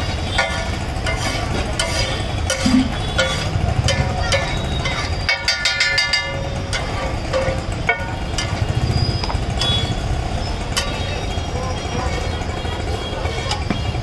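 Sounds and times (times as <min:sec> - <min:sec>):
metal spatula clanking on griddle: 0:00.0 - 0:08.7, 0:10.6 - 0:11.1.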